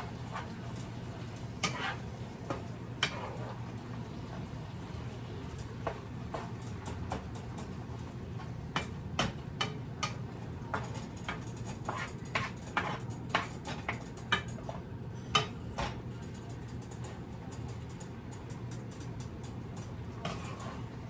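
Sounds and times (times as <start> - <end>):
wooden spoon scraping skillet: 0.0 - 4.5, 10.1 - 16.1, 20.1 - 21.0.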